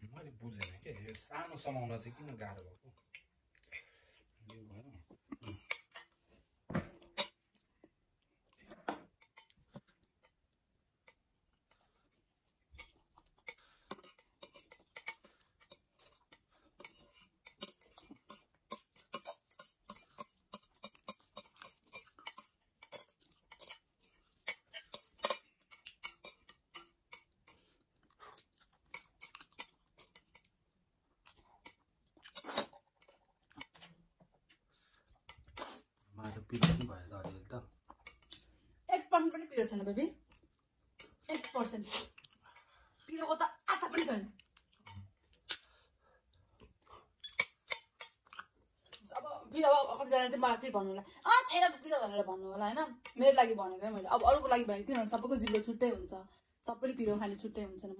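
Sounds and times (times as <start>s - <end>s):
metal chopsticks on ceramic plates: 0.4s - 3.3s, 5.4s - 6.2s, 12.7s - 27.7s, 28.8s - 30.5s, 31.3s - 34.0s, 37.9s - 38.5s, 39.2s - 45.2s, 47.2s - 49.3s, 52.9s - 56.0s
chewing: 7.0s - 36.0s, 40.2s - 43.0s, 44.3s - 49.2s.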